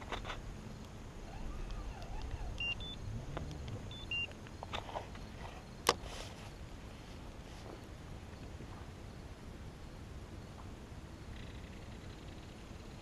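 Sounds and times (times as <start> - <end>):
faint low rumble: 0.0 - 13.0
short high beeps: 2.6 - 3.0, 3.9 - 4.3.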